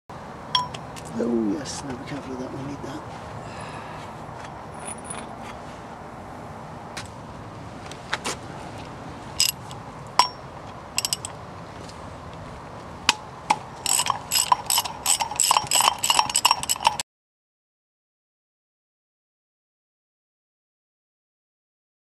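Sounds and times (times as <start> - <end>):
socket ratchet clicking: 9.4 - 10.4, 11.0 - 11.4, 13.8 - 17.0.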